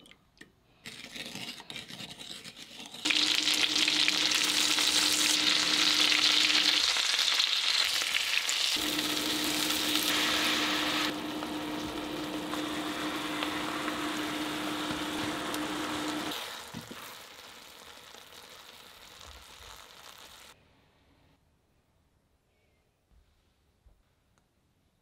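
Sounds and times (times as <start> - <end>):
chicken sizzling in a frying pan: 3.0 - 20.6.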